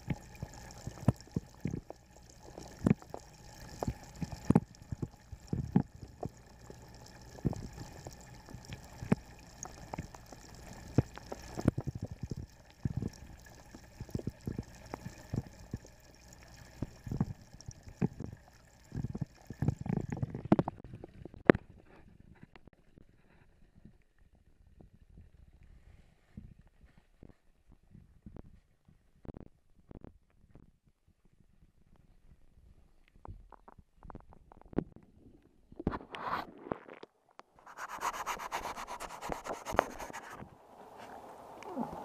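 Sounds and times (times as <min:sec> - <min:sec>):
underwater gurgling and sloshing: 0:00.0 - 0:26.6, 0:37.6 - 0:42.0.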